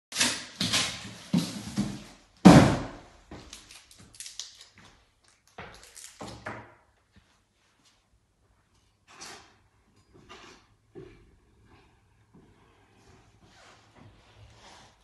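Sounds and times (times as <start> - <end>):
knocks and thuds: 2.4 - 3.0.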